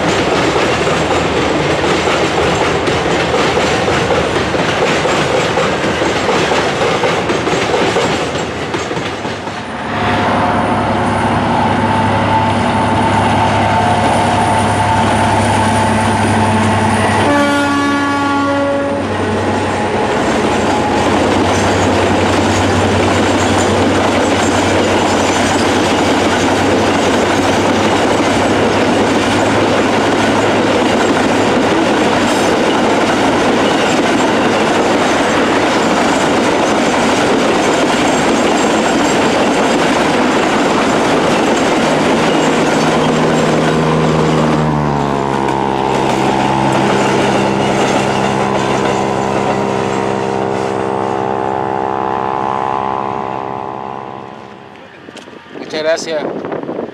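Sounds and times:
wheel clatter on rails: 0.0s - 9.7s, 19.4s - 50.6s
locomotive horn: 10.2s - 21.3s, 42.8s - 55.0s
freight wagons rumbling past: 18.6s - 56.9s
vehicle engine: 41.1s - 55.5s.

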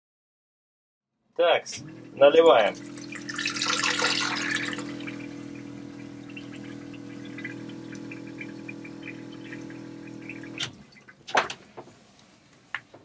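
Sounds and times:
toilet pump motor humming: 1.7s - 11.2s
water rushing into toilet bowl: 1.8s - 11.3s.

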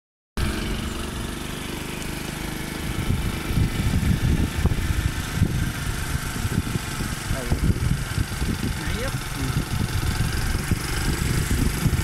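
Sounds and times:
vehicle engine humming: 0.4s - 12.0s
wind buffeting microphone: 2.8s - 12.0s.

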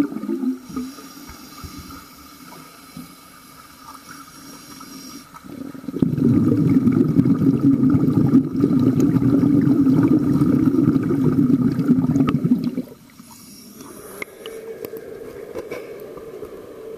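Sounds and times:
underwater bubbling and rumbling: 0.0s - 1.0s, 5.3s - 16.9s
faint steady hum: 0.0s - 16.9s.

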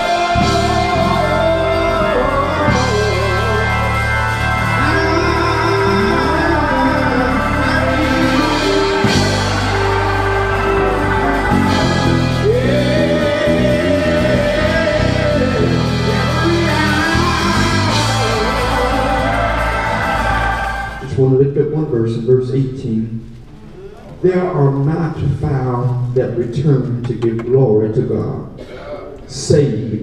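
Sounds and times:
church choir singing: 0.0s - 21.1s
electric keyboard chords: 0.0s - 21.5s.

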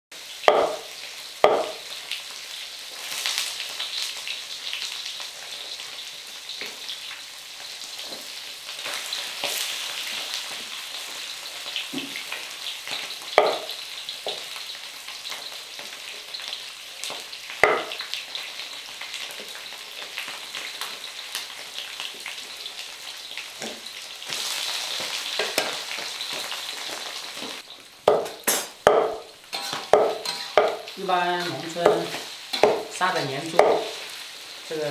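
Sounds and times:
fat sizzling in a wok: 0.1s - 34.9s
cleaver knocking on chopping board: 0.5s - 0.8s, 1.4s - 1.8s, 13.4s - 13.6s, 17.6s - 17.9s, 28.1s - 29.2s, 32.6s - 32.8s.

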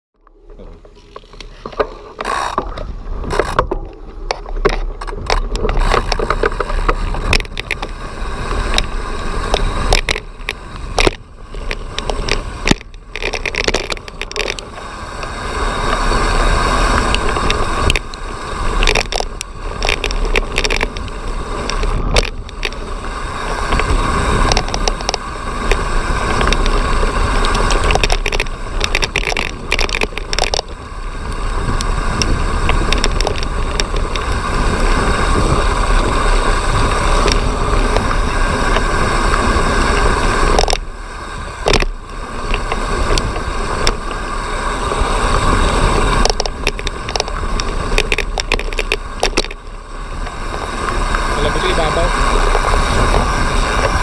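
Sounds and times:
bike knocking and rattling: 0.2s - 54.0s
bike tyres rumbling on dirt: 0.2s - 54.0s
wind on microphone: 0.4s - 54.0s.

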